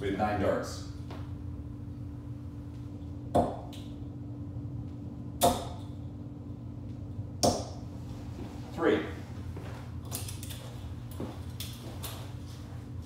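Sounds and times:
low steady hum: 0.0 - 13.0
darts hitting dartboard: 3.3 - 3.7, 5.4 - 5.9, 7.4 - 7.8.

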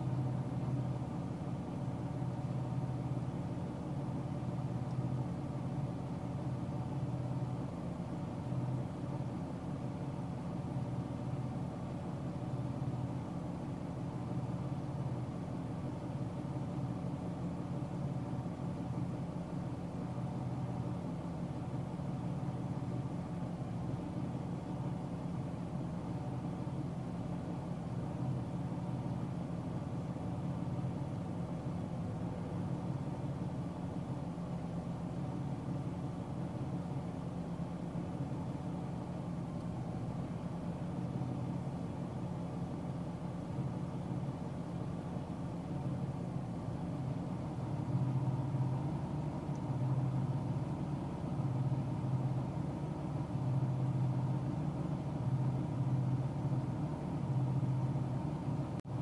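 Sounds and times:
car driving at highway speed: 0.0 - 59.0.

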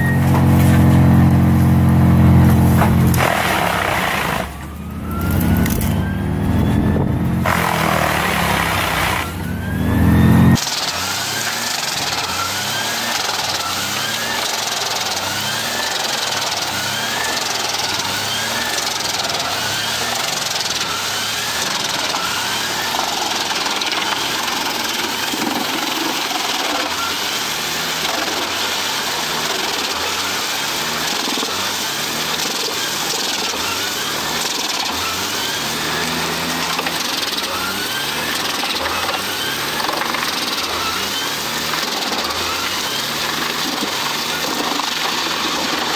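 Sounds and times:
short rising whine: 0.0 - 28.6
wood chipper chipping tree trunks: 0.0 - 45.9.

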